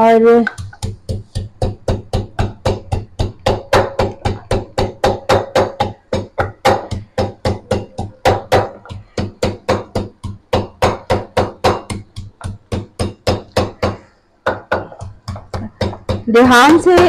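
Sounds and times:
pestle pounding in wooden mortar: 0:00.0 - 0:17.0.

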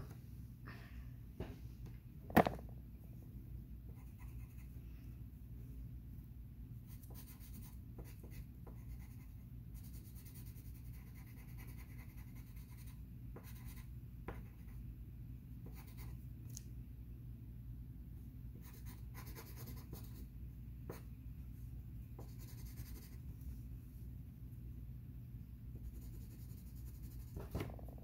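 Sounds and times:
steady low hum: 0:00.0 - 0:28.0
pencil scratching on paper: 0:04.0 - 0:04.7, 0:06.9 - 0:14.8, 0:15.6 - 0:16.1, 0:18.6 - 0:20.2, 0:22.2 - 0:23.2, 0:25.8 - 0:27.6.

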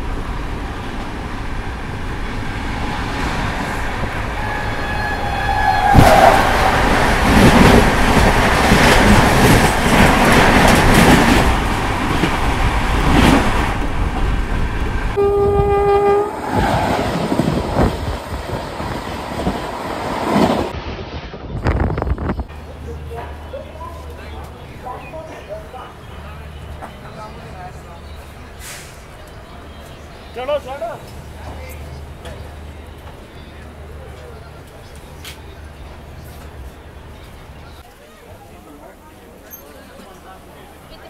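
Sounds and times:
train rushing and clattering: 0:00.0 - 0:41.0
train horn: 0:04.4 - 0:06.4, 0:15.2 - 0:16.4
faint horn-like tone: 0:15.2 - 0:16.4.

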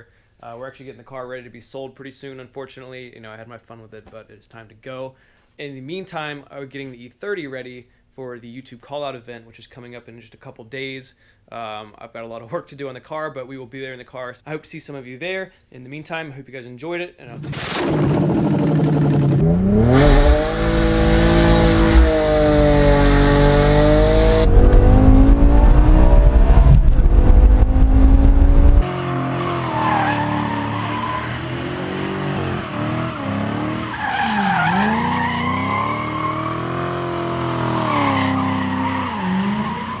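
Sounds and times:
car engine revving: 0:17.6 - 0:40.0
wind buffeting microphone: 0:24.5 - 0:28.8
tyres squealing: 0:29.0 - 0:40.0.

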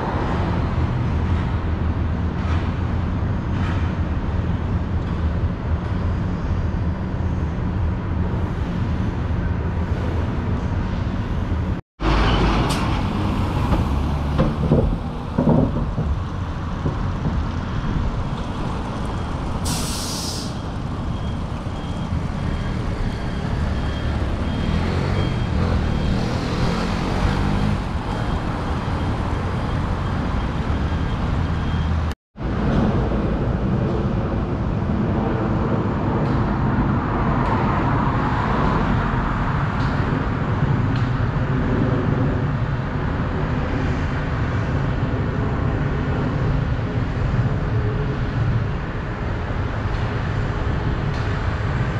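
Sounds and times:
cars passing: 0:00.0 - 0:51.9
low traffic rumble: 0:00.0 - 0:51.9
truck passing: 0:11.3 - 0:41.3
short sharp hiss: 0:19.6 - 0:20.6.

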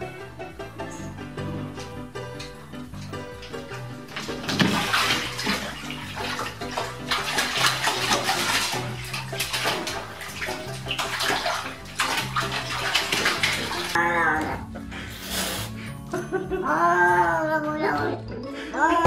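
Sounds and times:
bath water splashing: 0:00.0 - 0:15.8
cat clawing at bathtub rim: 0:03.5 - 0:14.0.

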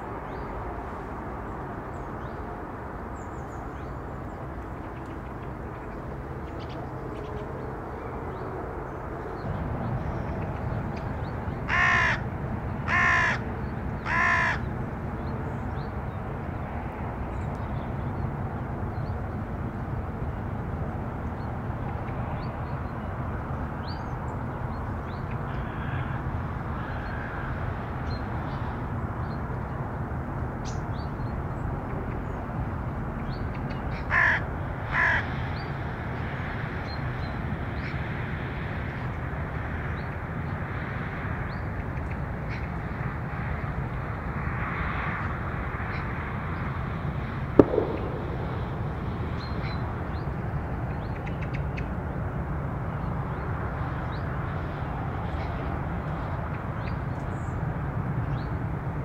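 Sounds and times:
steady low rumble: 0:02.2 - 0:14.0, 0:47.5 - 0:51.2
crow cawing: 0:11.7 - 0:12.2, 0:12.8 - 0:13.4, 0:14.0 - 0:14.7, 0:25.6 - 0:26.2, 0:34.0 - 0:35.3.

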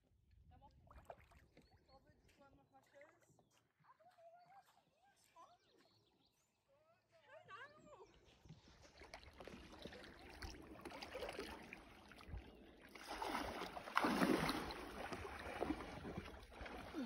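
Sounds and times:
paddle splashing in water: 0:08.4 - 0:17.0.

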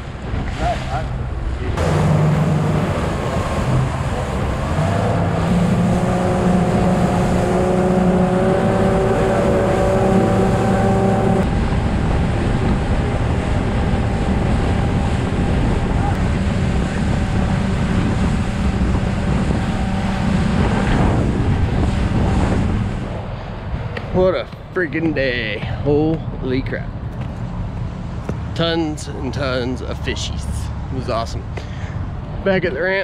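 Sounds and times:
motorboat engine: 0:00.0 - 0:23.9
rushing wind and water: 0:00.0 - 0:26.4.

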